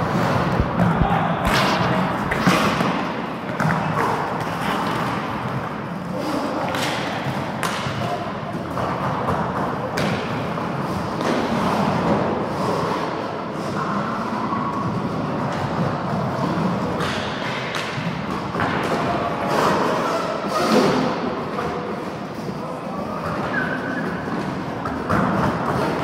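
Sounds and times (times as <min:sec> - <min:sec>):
skate wheels rolling on floor: 0:00.0 - 0:26.0
hockey sticks and ball knocking: 0:06.7 - 0:12.8.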